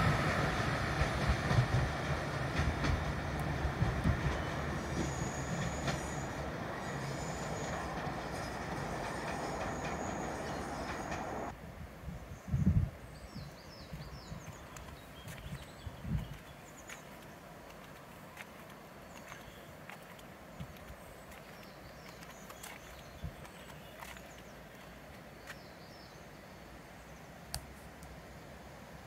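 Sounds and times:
diesel train pulling away: 0:00.0 - 0:11.6
high wheel squeal: 0:04.5 - 0:11.5.

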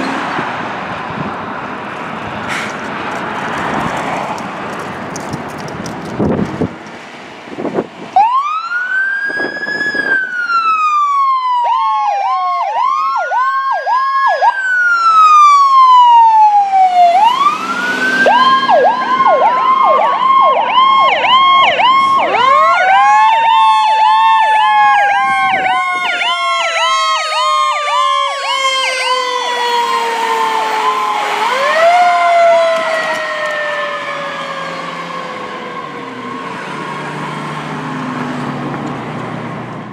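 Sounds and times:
electronic siren wail and yelp: 0:08.2 - 0:37.2.

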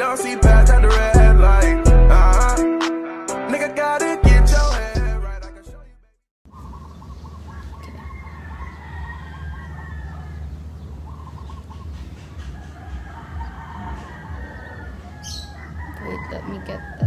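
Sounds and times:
chickens clucking: 0:06.5 - 0:17.0.

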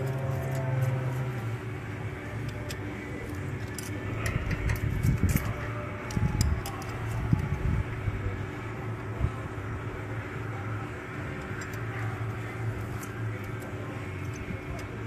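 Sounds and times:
steady low hum: 0:00.0 - 0:15.0
metal tool clicks: 0:02.4 - 0:07.4.

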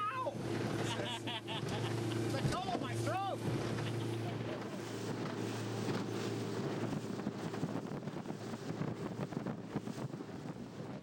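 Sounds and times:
motorboat engine hum: 0:00.0 - 0:11.0
wind buffeting microphone: 0:02.2 - 0:11.0.

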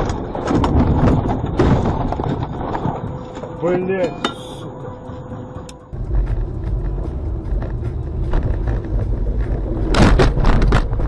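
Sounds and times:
knocks and rattles: 0:00.0 - 0:03.6
car engine and road rumble: 0:00.0 - 0:11.0.

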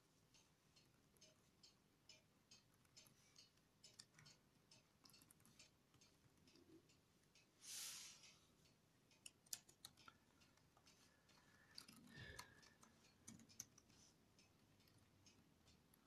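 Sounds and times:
short hiss: 0:07.6 - 0:08.4
laptop keyboard typing clicks: 0:09.2 - 0:10.2.

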